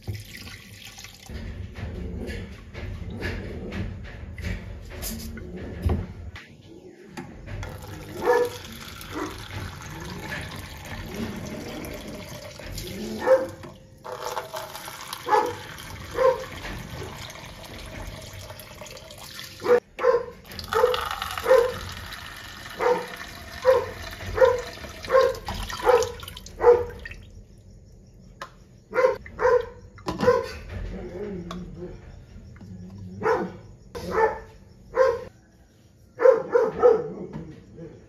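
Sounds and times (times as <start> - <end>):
tap running into metal pot: 7.6 - 12.9, 20.5 - 26.5
dog barking: 8.1 - 9.4, 13.1 - 13.6, 15.2 - 16.5, 19.6 - 21.9, 22.8 - 27.0, 28.9 - 30.6, 33.1 - 35.3, 36.2 - 38.0.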